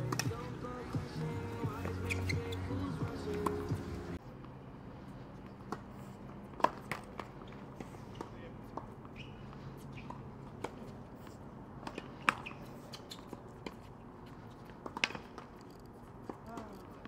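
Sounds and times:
tennis ball racquet strikes: 0.0s - 0.4s, 6.6s - 9.3s
shoe squeak: 1.5s - 3.7s, 7.2s - 17.0s
feet scuffing on court: 5.3s - 16.9s.

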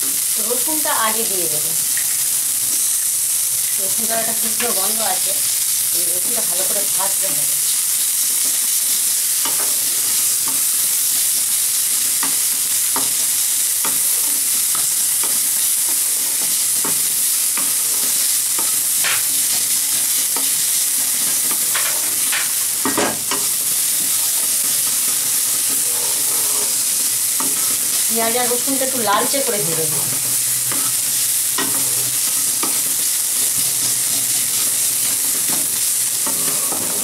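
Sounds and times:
onions sizzling in hot oil: 0.0s - 37.0s
wooden spatula scraping a pan: 12.1s - 37.0s.

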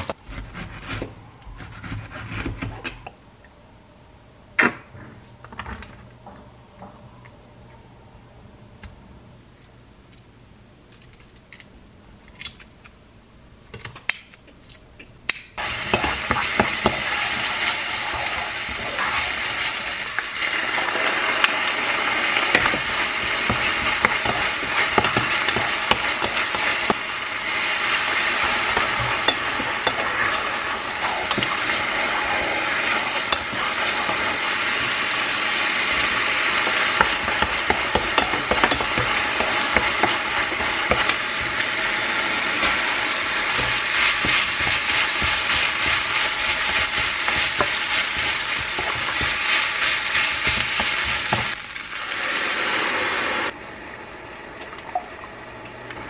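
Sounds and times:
onion and garlic sizzling in pan: 15.6s - 53.6s
wooden spoon scraping pan: 15.8s - 19.6s, 22.5s - 27.1s, 28.4s - 35.0s, 35.9s - 42.0s, 43.4s - 51.6s.

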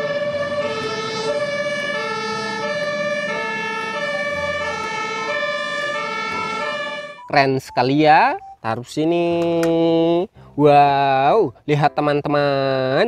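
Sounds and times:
two-tone siren: 0.0s - 7.6s.

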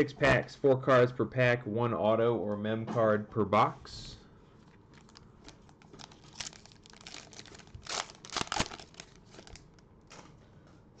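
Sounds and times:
foil wrapper crinkling and tearing: 4.9s - 9.8s.

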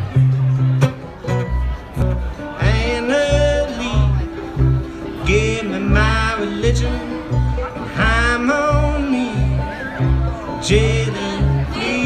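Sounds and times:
acoustic guitar: 0.0s - 12.0s
upright bass notes: 0.0s - 12.0s
person singing: 2.4s - 12.0s.

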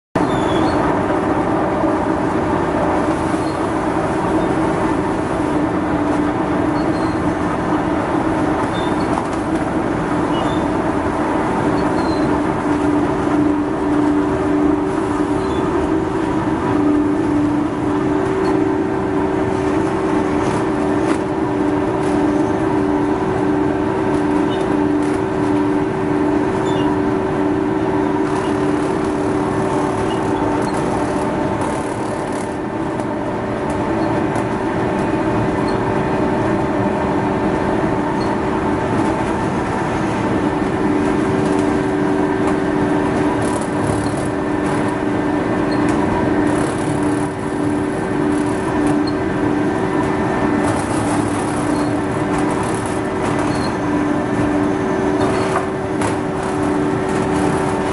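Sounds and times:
rag-tearing machine droning: 11.2s - 35.6s, 38.4s - 57.9s.

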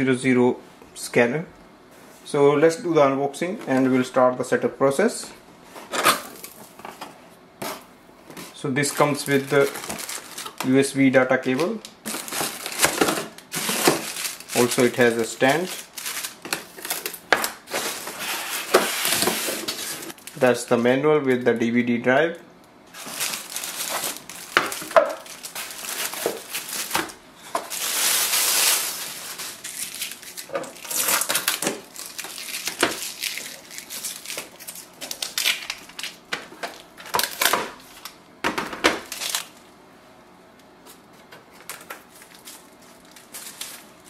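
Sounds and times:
plastic wrapping crinkling: 8.8s - 10.8s, 11.4s - 20.4s, 22.9s - 38.2s, 39.0s - 39.6s, 41.5s - 44.0s
styrofoam rubbing and squeaking: 17.7s - 20.2s, 27.6s - 34.4s.

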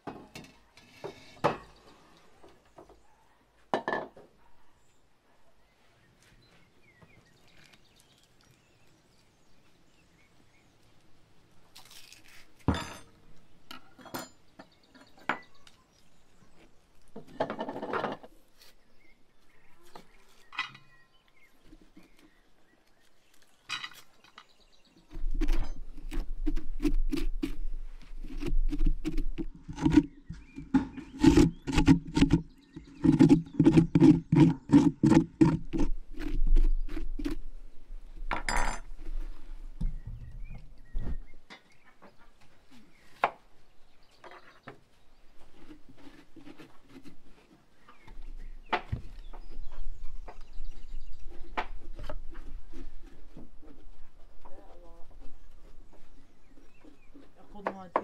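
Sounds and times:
scraping inside a pumpkin: 25.1s - 37.8s, 45.1s - 48.5s, 49.2s - 57.6s
knocks and clinks: 38.3s - 38.9s.

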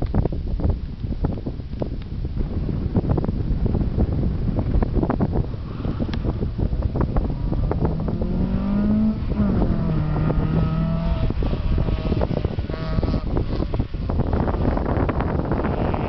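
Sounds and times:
wind buffeting microphone: 0.0s - 16.0s
car engine revving: 6.9s - 16.0s.

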